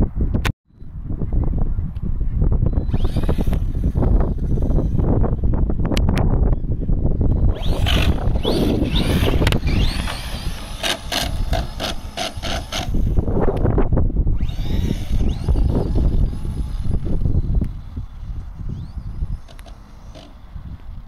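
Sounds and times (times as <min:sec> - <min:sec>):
wind buffeting microphone: 0:00.0 - 0:21.0
electric motor whining: 0:02.7 - 0:05.8, 0:07.3 - 0:21.0.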